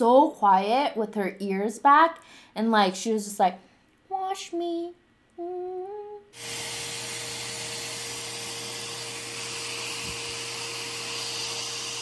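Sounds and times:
dog dryer blowing air: 6.4s - 12.0s
dryer motor hum: 6.4s - 12.0s.

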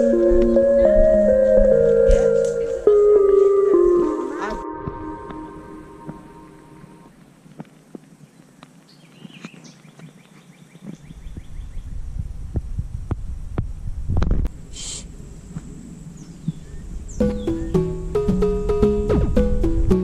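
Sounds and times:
birds calling: 0.0s - 7.1s, 16.1s - 18.6s
plucked string tune: 0.0s - 7.1s, 17.2s - 20.0s
bird trilling: 16.7s - 18.0s.

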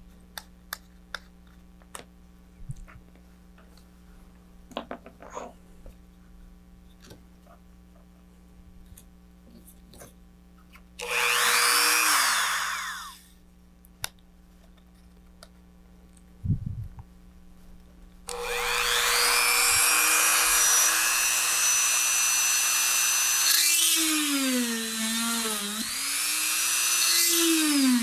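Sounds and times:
power drill drilling: 11.0s - 13.2s, 18.3s - 28.0s.

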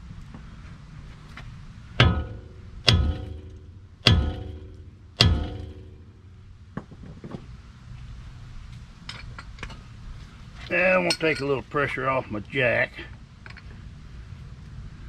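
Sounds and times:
hammer striking steel: 2.0s - 6.3s.

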